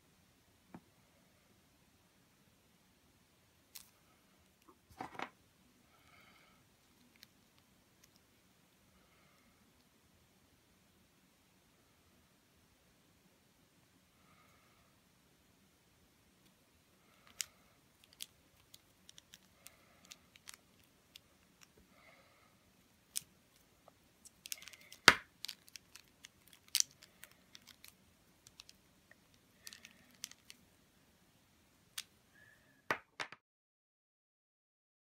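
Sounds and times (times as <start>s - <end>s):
plastic toy clicking: 24.2s - 27.9s.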